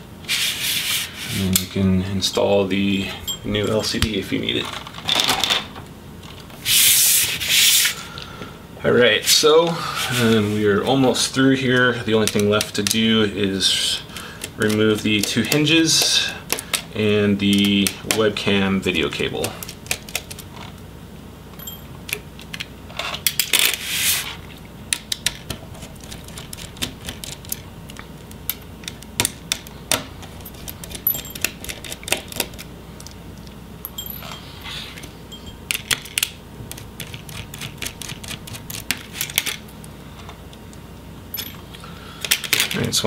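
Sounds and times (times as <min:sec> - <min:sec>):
metal screws clinking: 0:30.4 - 0:32.6, 0:33.8 - 0:36.0.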